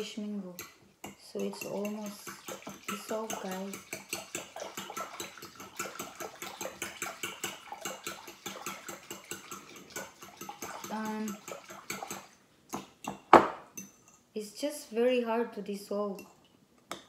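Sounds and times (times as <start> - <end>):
spoon clinking against glass bowl: 0.6 - 12.3
liquid sloshing: 1.6 - 12.4.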